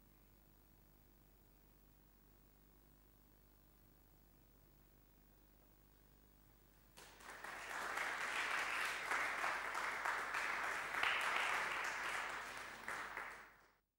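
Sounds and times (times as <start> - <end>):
audience applauding: 7.0 - 13.8.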